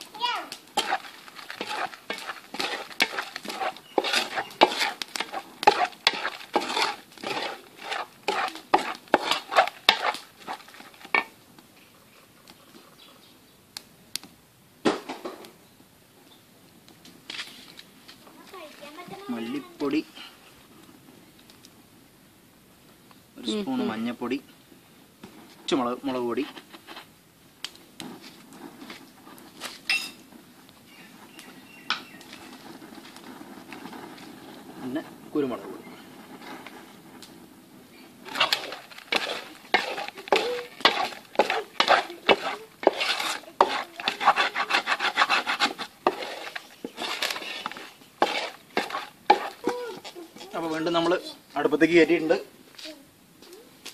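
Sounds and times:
spatula scraping metal bowl: 0.8 - 11.3, 38.2 - 49.8
spatula tapping: 0.8 - 11.3, 38.3 - 49.8.

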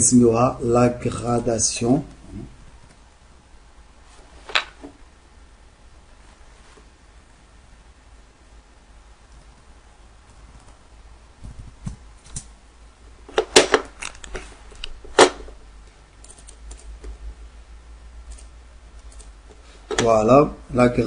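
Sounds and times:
computer keyboard clicks: 16.2 - 16.9, 18.3 - 19.3.

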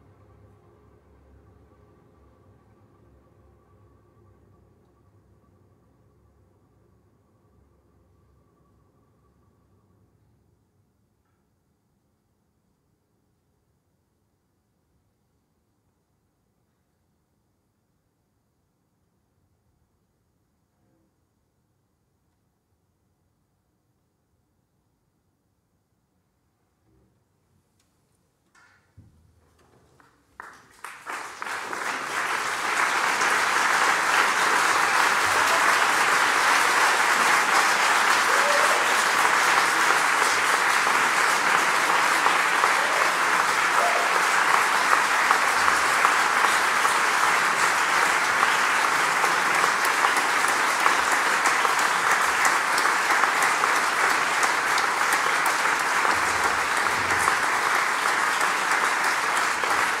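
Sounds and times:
audience applause: 30.3 - 60.0.

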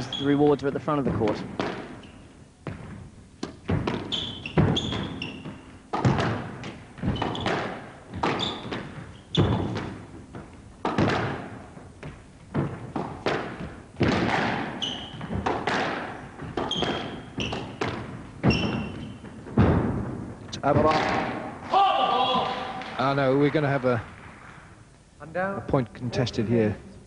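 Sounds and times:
shoes squeaking on court: 0.0 - 19.8
squash ball hits: 1.1 - 23.0.

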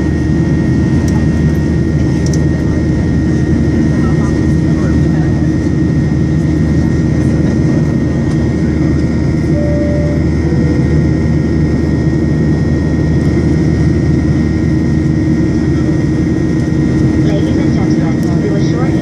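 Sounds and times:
jet engine rumble in cabin: 0.0 - 19.0
two-note falling chime: 9.5 - 11.0.

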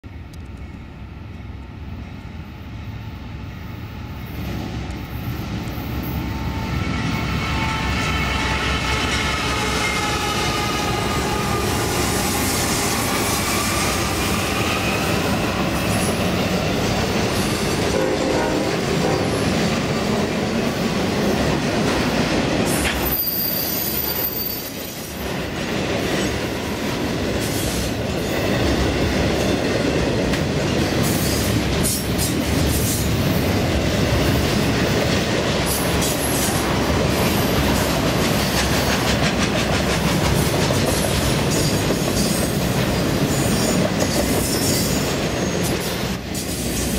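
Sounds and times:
high wheel squeal: 6.2 - 16.1, 22.9 - 25.1
freight train cars clattering: 33.9 - 46.9.

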